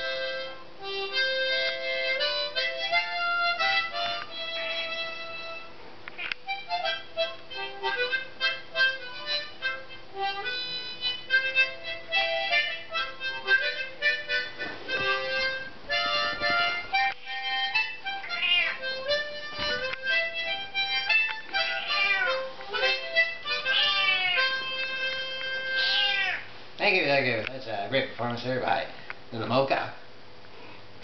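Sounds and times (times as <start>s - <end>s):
harmonica: 0.0s - 26.6s
cat meowing: 18.1s - 19.0s, 21.6s - 22.5s, 23.6s - 24.7s, 25.6s - 26.5s.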